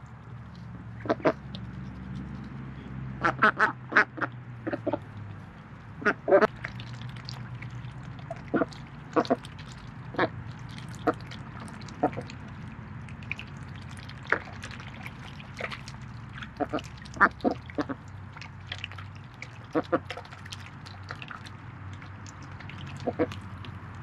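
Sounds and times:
ducks quacking: 1.0s - 1.4s, 3.2s - 5.0s, 6.0s - 6.5s, 8.3s - 9.5s, 10.1s - 12.4s, 13.3s - 18.1s, 19.4s - 20.3s, 22.9s - 23.4s.

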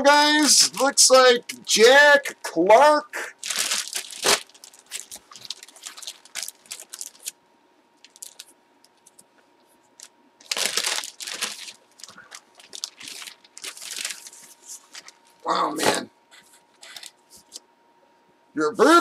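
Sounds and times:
plastic bag crinkling: 3.3s - 7.4s, 8.0s - 9.2s, 10.0s - 15.5s, 16.8s - 17.2s.

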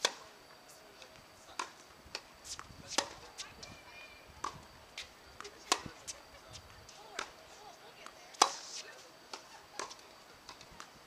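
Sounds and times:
tennis balls struck by rackets: 0.0s - 0.4s, 1.0s - 3.5s, 4.4s - 11.0s
tennis balls bouncing on hard court: 5.4s - 7.4s.

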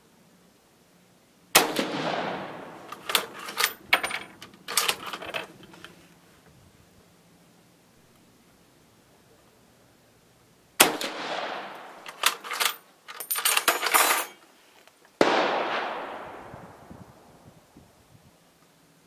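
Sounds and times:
rifle shots echoing: 1.5s - 3.7s, 10.8s - 12.5s, 15.2s - 16.8s
rifle bolt metallic clacks: 2.8s - 6.0s, 11.7s - 14.4s.

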